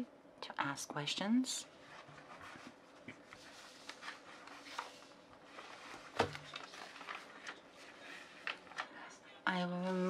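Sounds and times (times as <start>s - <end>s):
faint rustling: 1.8s - 9.0s.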